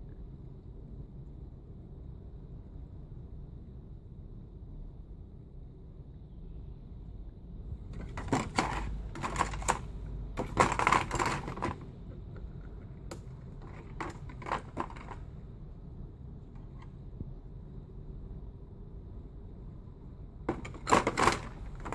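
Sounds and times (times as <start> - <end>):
plastic tray crinkling: 8.0 - 11.9, 13.1 - 15.3, 20.5 - 21.9
plastic knocking and clicking: 8.0 - 15.2, 20.5 - 21.9.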